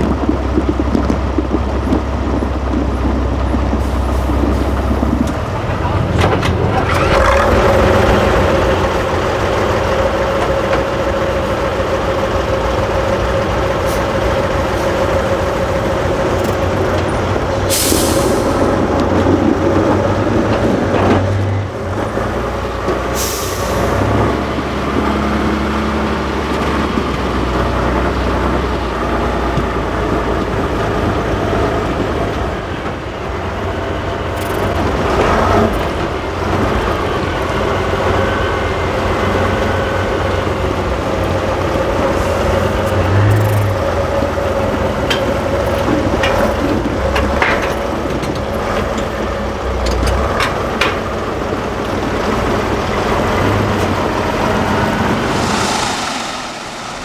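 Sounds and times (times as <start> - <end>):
diesel truck engine under load: 0.0 - 55.3
air brakes hissing: 17.7 - 19.0, 23.1 - 24.2.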